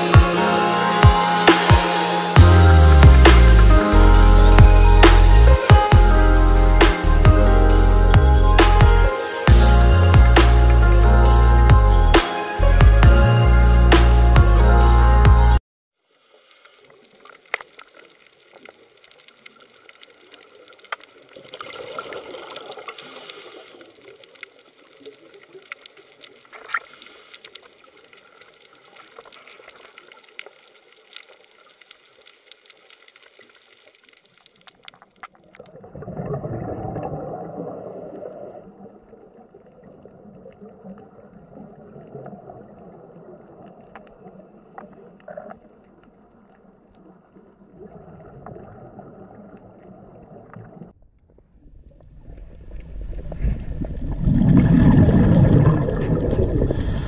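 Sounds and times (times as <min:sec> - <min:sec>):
muffled underwater water noise: 0:16.0 - 0:57.0.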